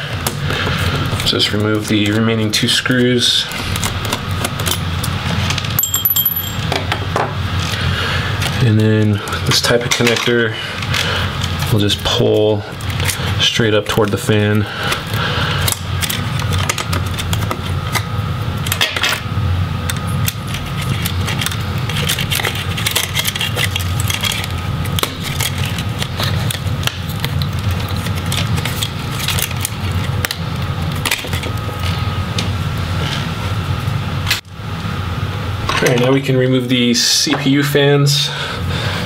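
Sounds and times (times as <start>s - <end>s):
steady low hum: 0.0s - 39.0s
clicks and rustles of wires: 8.4s - 19.2s, 19.9s - 32.5s.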